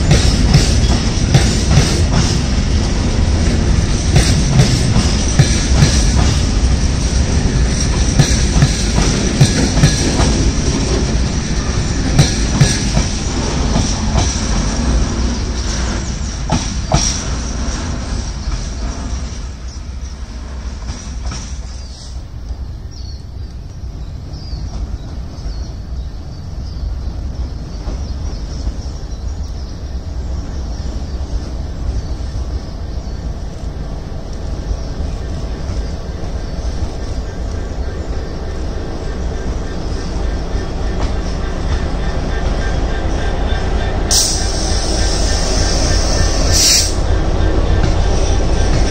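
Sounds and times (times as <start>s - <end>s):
train wheels clicking over rail joints: 0.0s - 25.7s, 27.1s - 48.9s
high wheel squeal: 39.1s - 48.9s.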